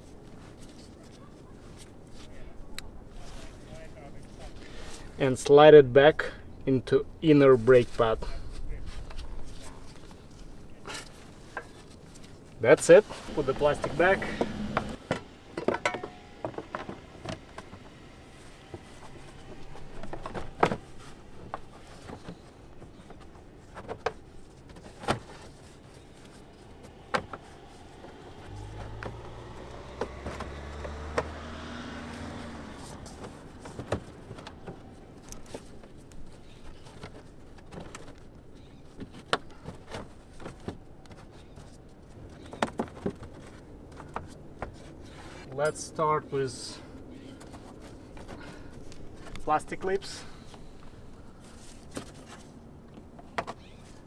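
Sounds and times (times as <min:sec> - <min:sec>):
passing vehicle rumble: 0:12.9 - 0:22.8, 0:25.6 - 0:35.8.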